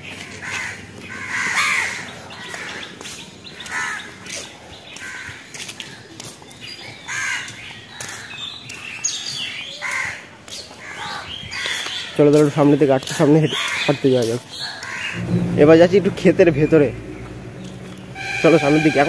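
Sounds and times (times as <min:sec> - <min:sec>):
crows cawing: 0:00.0 - 0:03.0, 0:03.6 - 0:05.6, 0:07.0 - 0:08.4, 0:09.2 - 0:10.2, 0:10.8 - 0:12.2, 0:13.5 - 0:15.3.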